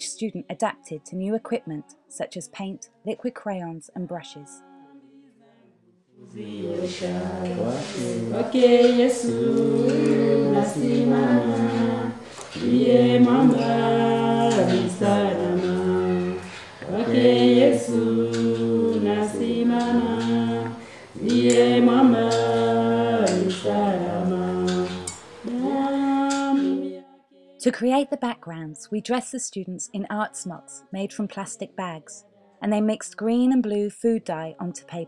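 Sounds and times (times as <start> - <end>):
choir singing in harmony: 6.2 - 27.1.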